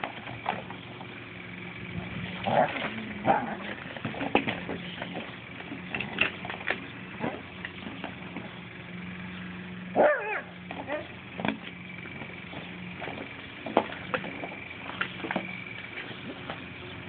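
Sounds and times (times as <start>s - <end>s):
low hum: 0.0s - 17.0s
dog crying: 10.0s - 11.2s.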